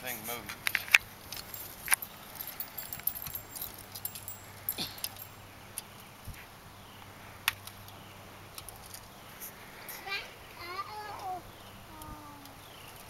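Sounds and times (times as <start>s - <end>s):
armour clinking and jingling: 0.2s - 5.5s.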